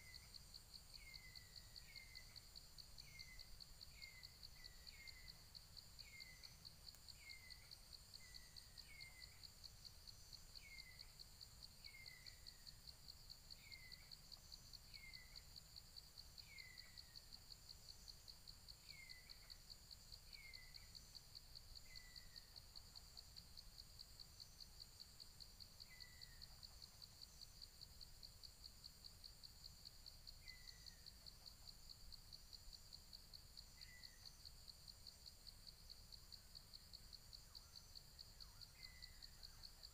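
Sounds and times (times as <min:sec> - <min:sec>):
bird chirping: 0:00.0 - 0:28.1, 0:29.3 - 0:34.6, 0:37.2 - 0:39.9.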